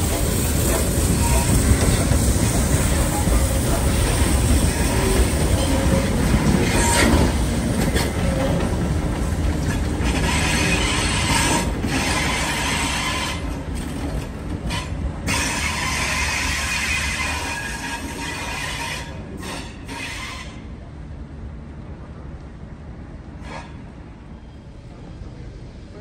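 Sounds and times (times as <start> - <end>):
steel wheels squealing on rails: 0.0 - 20.8, 23.4 - 25.1
train rumble: 0.0 - 26.0.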